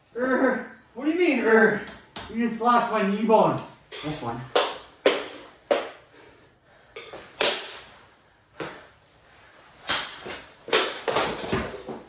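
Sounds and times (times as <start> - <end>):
hockey sticks clacking: 3.9 - 6.0, 6.9 - 7.9, 9.9 - 12.0.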